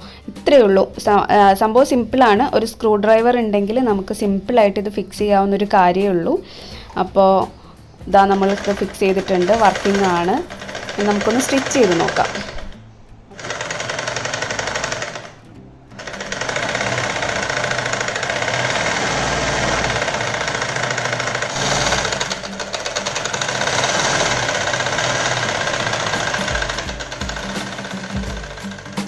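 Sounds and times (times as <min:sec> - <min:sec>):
sewing machine clattering: 0:08.2 - 0:12.8, 0:13.4 - 0:15.4, 0:16.0 - 0:29.0.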